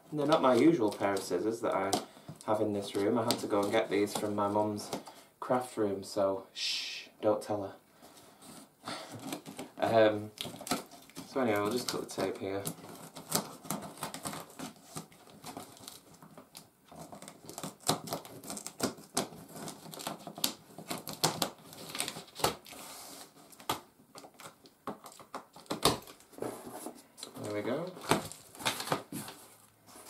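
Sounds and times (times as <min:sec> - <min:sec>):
tape and cardboard crackling: 0:00.0 - 0:05.2, 0:08.4 - 0:30.0
cardboard flaps rustling: 0:08.3 - 0:30.0.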